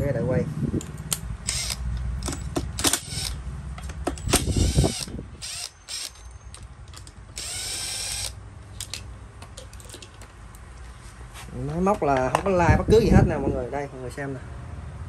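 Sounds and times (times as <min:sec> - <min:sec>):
impact driver running: 0:01.5 - 0:03.4, 0:04.2 - 0:06.2, 0:07.3 - 0:08.4.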